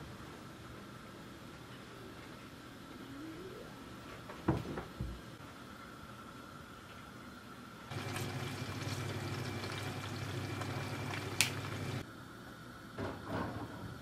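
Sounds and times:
oven humming: 7.2s - 14.0s.

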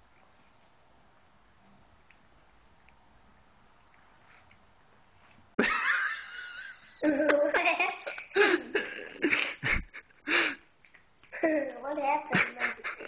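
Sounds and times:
person laughing: 5.6s - 10.5s, 12.3s - 13.0s.

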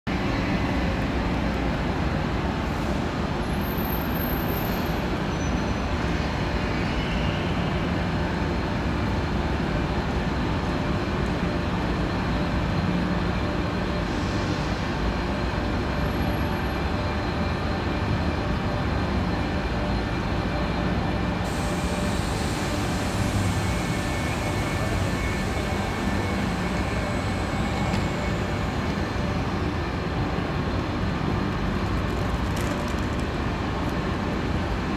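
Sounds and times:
railway station hall hum: 0.0s - 34.9s.

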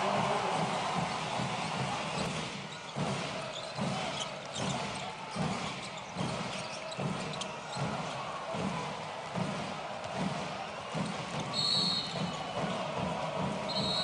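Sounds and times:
crowd noise: 0.0s - 14.0s
shoe squeaks on court: 2.8s - 7.8s.

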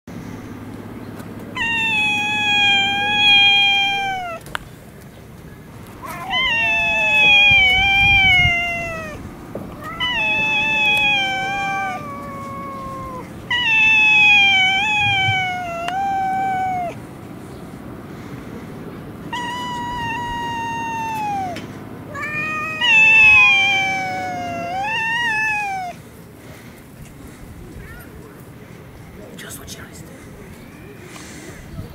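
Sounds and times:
cat yowling: 1.5s - 4.4s, 6.0s - 17.1s, 19.3s - 26.0s.

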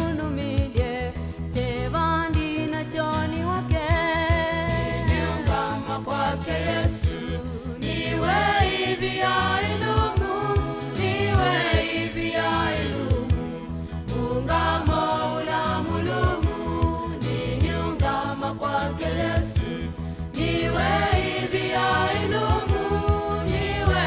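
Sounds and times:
group singing gospel: 4.0s - 24.0s
band with beat and bass: 6.6s - 24.0s.

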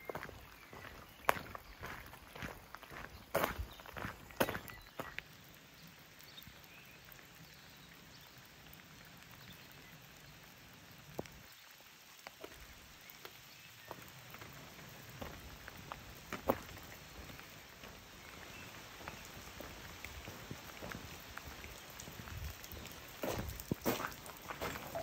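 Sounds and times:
footsteps on a path: 0.0s - 5.3s, 12.4s - 25.0s
outdoor hiss: 0.0s - 25.0s.

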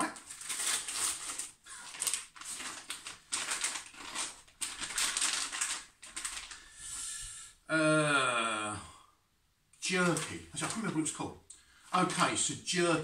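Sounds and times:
plastic packets crinkling: 0.0s - 6.7s, 9.9s - 11.0s.

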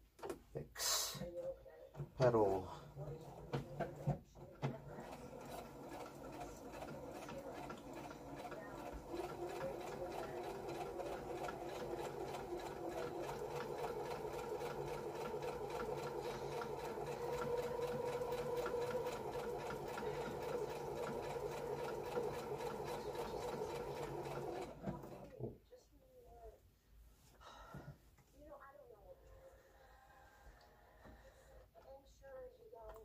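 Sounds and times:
sewing machine running: 4.8s - 25.4s.

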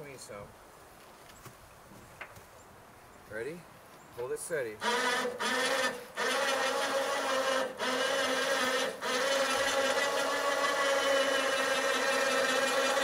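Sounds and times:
winch motor whining: 4.8s - 13.0s.

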